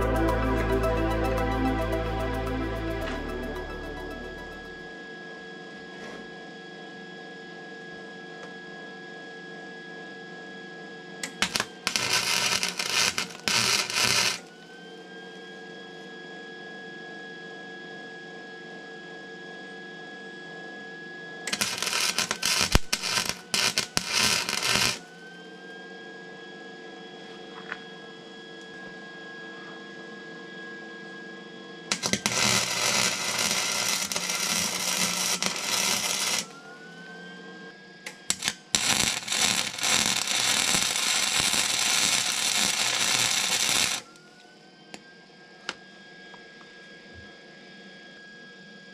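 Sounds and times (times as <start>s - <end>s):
crackling welding arc: 11.2s - 14.5s, 21.5s - 25.1s, 31.9s - 36.5s, 38.1s - 44.1s
welding machine hum: 11.2s - 14.6s, 21.5s - 25.2s, 31.9s - 36.6s, 38.1s - 44.2s.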